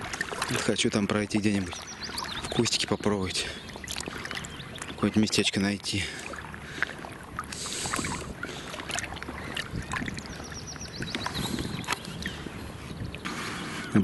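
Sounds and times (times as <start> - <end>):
water sloshing around legs: 0.0 - 14.0
bird chirping: 1.4 - 5.5, 9.4 - 14.0.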